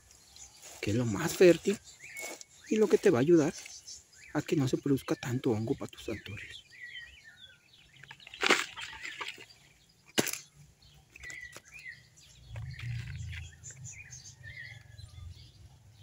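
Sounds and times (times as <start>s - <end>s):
small birds chirping: 0.0s - 16.0s.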